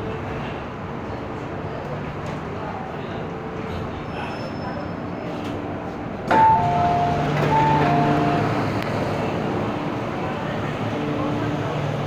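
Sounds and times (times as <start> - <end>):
train carriage hum: 0.0 - 12.0
train doors clunking open: 5.2 - 9.9
two-tone door chime: 6.3 - 8.5.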